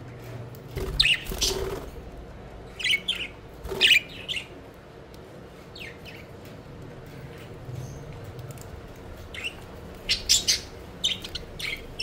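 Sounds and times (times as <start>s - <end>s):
wings fluttering: 0.7s - 2.0s
budgerigars chirping: 9.3s - 12.0s.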